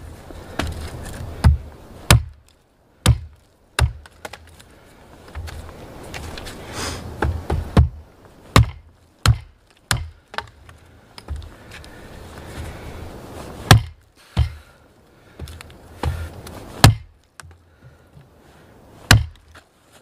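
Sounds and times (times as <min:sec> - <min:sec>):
hatchet chopping wood: 0:01.4 - 0:02.4, 0:03.0 - 0:04.5, 0:07.2 - 0:10.6, 0:13.7 - 0:14.7, 0:15.4 - 0:17.6, 0:19.1 - 0:19.5.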